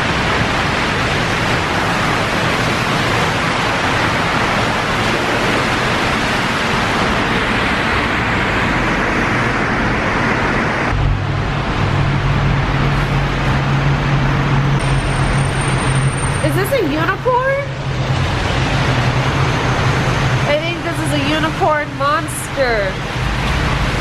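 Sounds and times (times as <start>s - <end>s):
rain hissing: 0.0s - 17.1s
low engine hum: 0.0s - 24.0s
traffic on a wet road: 0.0s - 24.0s.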